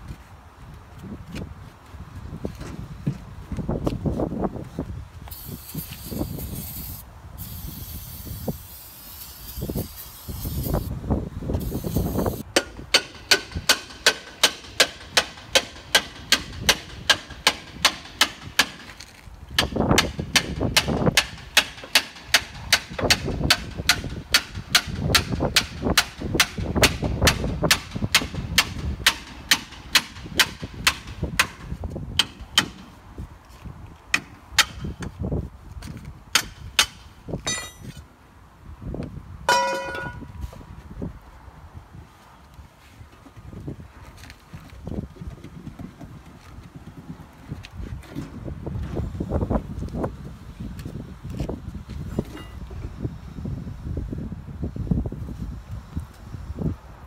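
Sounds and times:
hammer striking metal hub: 36.4 - 38.0, 39.5 - 40.3.

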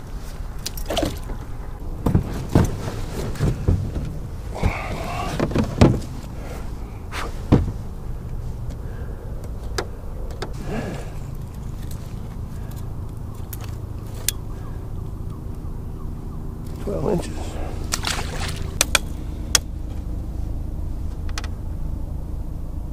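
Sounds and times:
plastic kayak clunking: 0.6 - 6.4.

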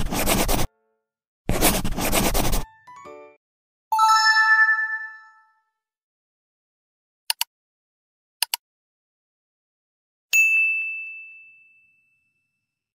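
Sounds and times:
bright ringing ding: 10.4 - 12.8.

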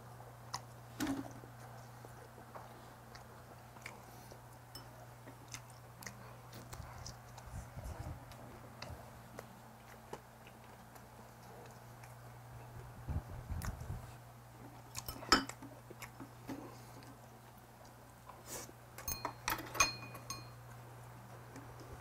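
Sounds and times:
soft chewing: 0.0 - 19.4, 20.2 - 22.0
steady low hum: 0.0 - 22.0
chopsticks clinking on bowls: 4.7 - 5.0, 15.0 - 15.6, 19.0 - 20.7.

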